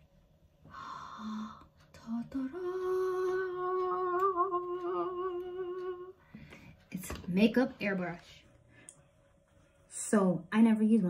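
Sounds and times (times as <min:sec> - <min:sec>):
woman singing long note: 0:00.8 - 0:06.2.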